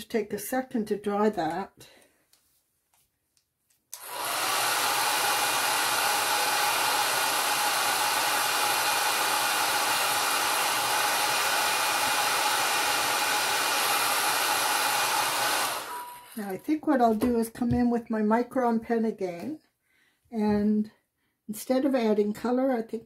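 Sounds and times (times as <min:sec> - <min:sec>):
hair dryer blowing: 0:03.9 - 0:16.5.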